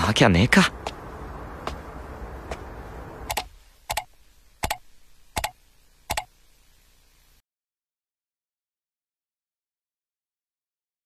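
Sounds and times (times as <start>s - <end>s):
faint steady background: 0.0s - 7.4s
footsteps of man walking: 0.8s - 2.8s.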